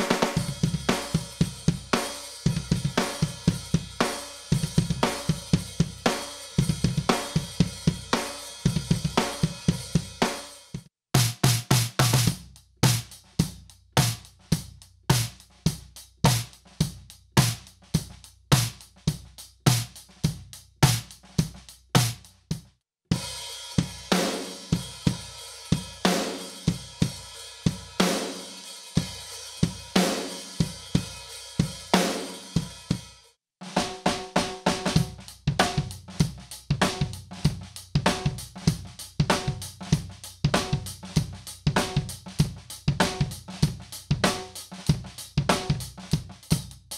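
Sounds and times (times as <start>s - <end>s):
drum kit groove: 0.0s - 46.9s
snare drum hits: 11.2s - 12.3s.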